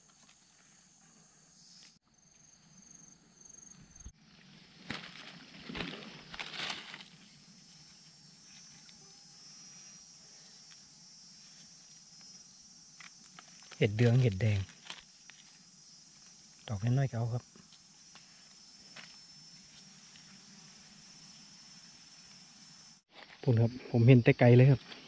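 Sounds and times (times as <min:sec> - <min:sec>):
faint insect hum: 0:00.0 - 0:25.0
insect pulsing trill: 0:00.0 - 0:25.0
rustle in dry leaf litter: 0:04.4 - 0:07.4.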